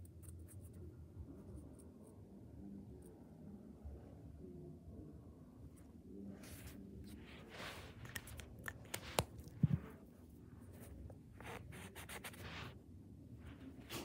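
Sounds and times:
cotton swab rubbing on paper: 0:11.4 - 0:12.8.

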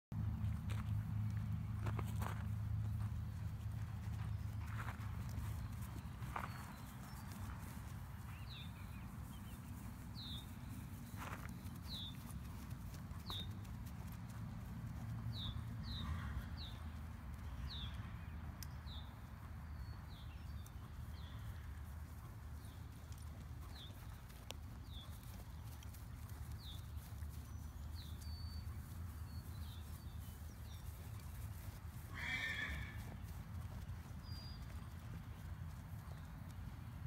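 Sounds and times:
man's footsteps: 0:00.2 - 0:14.9
hoofbeats on grass: 0:00.2 - 0:37.0.

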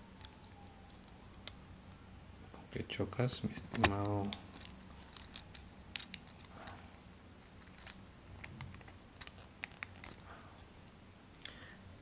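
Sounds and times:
plastic toy parts clicking: 0:03.6 - 0:06.8, 0:07.6 - 0:10.2.

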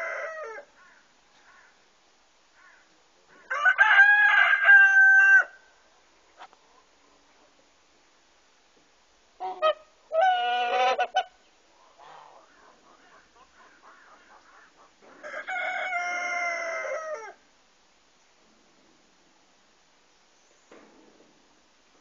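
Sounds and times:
rooster crowing: 0:00.0 - 0:00.7, 0:03.5 - 0:05.7, 0:15.2 - 0:17.4.

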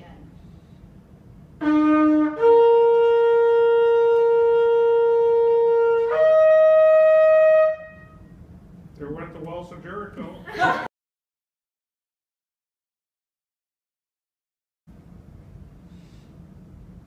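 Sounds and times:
shofar blowing: 0:01.6 - 0:08.4.

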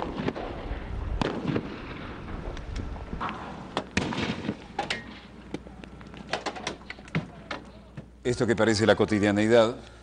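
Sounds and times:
gunfire bangs and pops: 0:01.2 - 0:01.9, 0:03.8 - 0:05.1.

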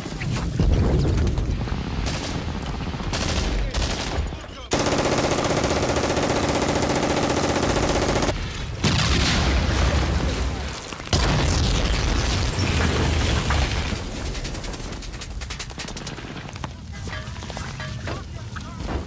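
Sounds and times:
gunshots: 0:01.9 - 0:10.2
rapid machine-gun fire: 0:02.0 - 0:09.2.

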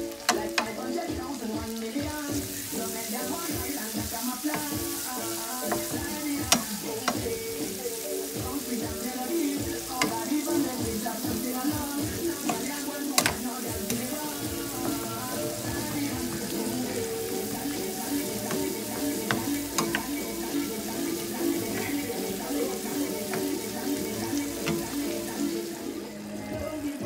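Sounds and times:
vegetables sizzling in a frying pan: 0:00.0 - 0:27.0
wooden spoon stirring: 0:02.0 - 0:26.2
spoon knocking against pan: 0:05.6 - 0:07.5, 0:09.9 - 0:20.5, 0:23.2 - 0:25.2.

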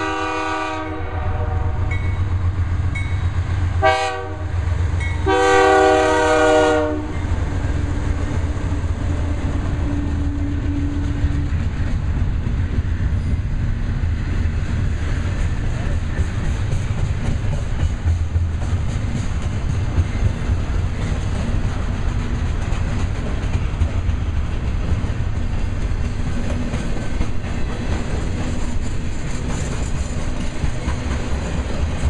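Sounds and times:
locomotive air horn blasts: 0:00.0 - 0:02.0, 0:03.8 - 0:04.6, 0:05.2 - 0:07.2
train engines rumbling: 0:00.0 - 0:32.0
wheels clacking on rail joints: 0:14.7 - 0:32.0.

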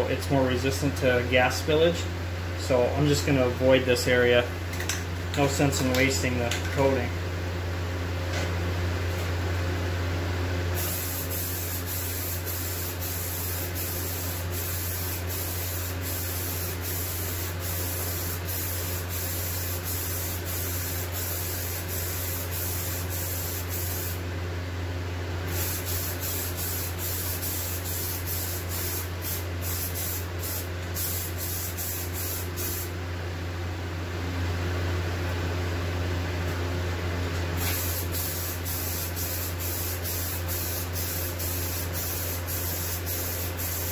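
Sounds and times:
steady low hum: 0:00.0 - 0:43.9
aerosol spray can hissing: 0:10.8 - 0:24.2, 0:25.5 - 0:32.9, 0:37.6 - 0:43.9.

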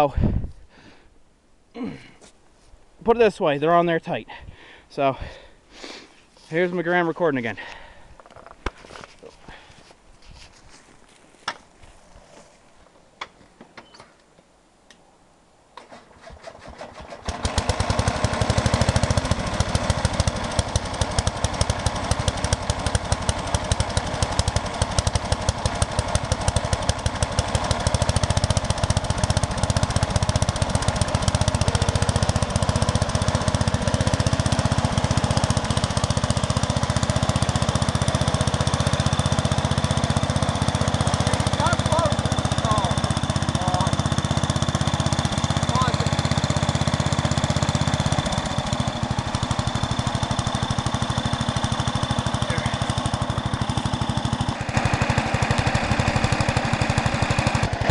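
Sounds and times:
garden tractor engine running: 0:15.8 - 0:57.9.

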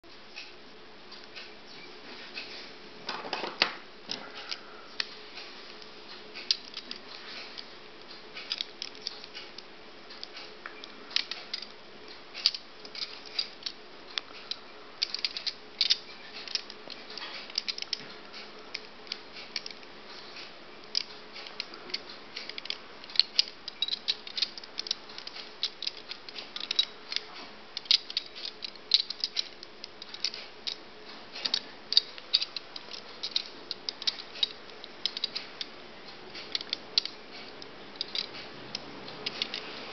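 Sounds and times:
faint steady hum: 0:00.0 - 0:39.9
metal puzzle pieces clicking: 0:06.4 - 0:07.7, 0:08.4 - 0:11.7, 0:12.4 - 0:13.8, 0:14.4 - 0:19.9, 0:20.8 - 0:30.8, 0:31.4 - 0:39.7.

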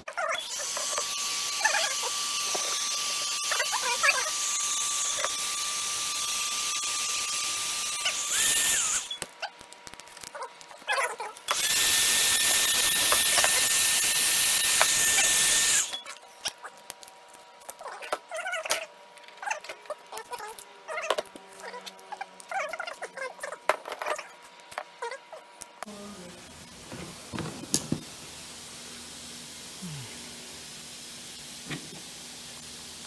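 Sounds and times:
hot-air blower hissing and whining: 0:00.4 - 0:09.4, 0:11.4 - 0:16.0, 0:25.8 - 0:33.0.

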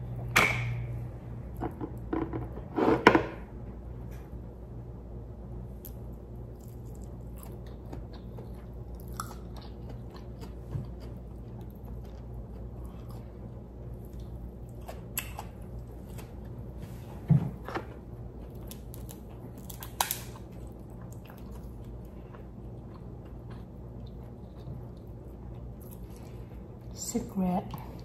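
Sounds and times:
person chewing: 0:05.8 - 0:16.8, 0:18.3 - 0:26.7
crab shell snapping: 0:19.7 - 0:20.4.

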